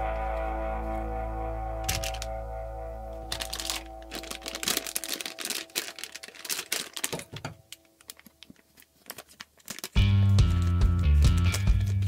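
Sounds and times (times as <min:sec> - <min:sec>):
plastic pouch crinkling: 0:01.9 - 0:02.4, 0:03.2 - 0:12.0.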